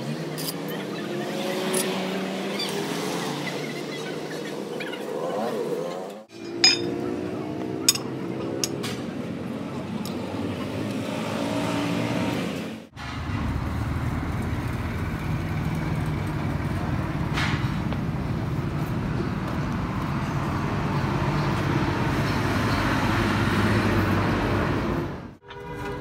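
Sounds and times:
engine running: 0:12.6 - 0:25.4.

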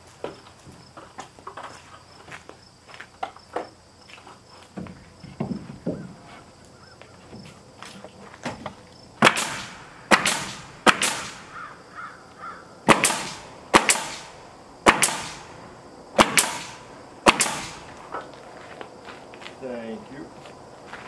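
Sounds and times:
pneumatic nail gun firing: 0:09.2 - 0:11.6, 0:12.9 - 0:15.5, 0:16.2 - 0:18.0.

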